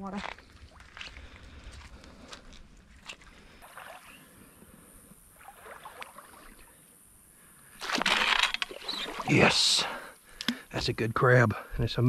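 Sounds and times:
dip net splashing in water: 0:03.6 - 0:04.2, 0:05.4 - 0:06.6, 0:07.8 - 0:09.4.

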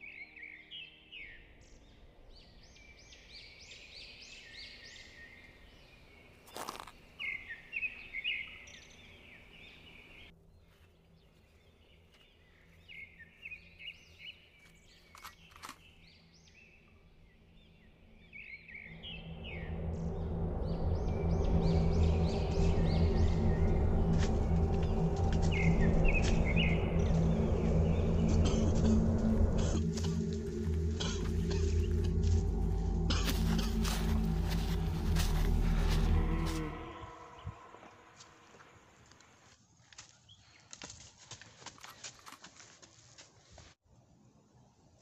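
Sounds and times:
small birds chirping: 0:00.0 - 0:40.8
woodland ambience: 0:00.0 - 0:45.0
low steady music: 0:17.2 - 0:37.7.

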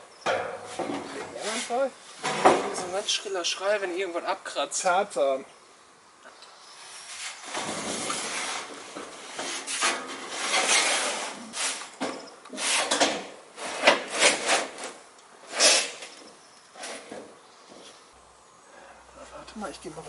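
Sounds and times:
metal sheet scraping on roof: 0:06.9 - 0:11.9, 0:12.5 - 0:16.1, 0:16.8 - 0:17.3.

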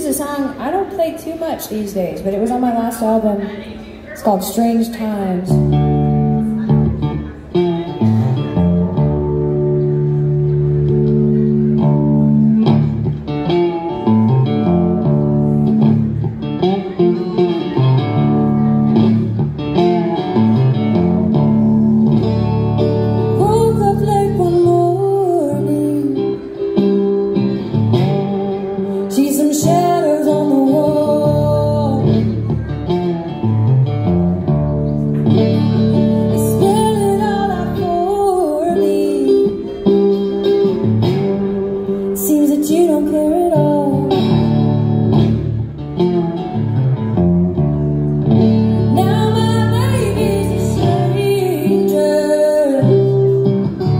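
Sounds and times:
fingerpicked resonator guitar blues: 0:05.4 - 0:53.9.

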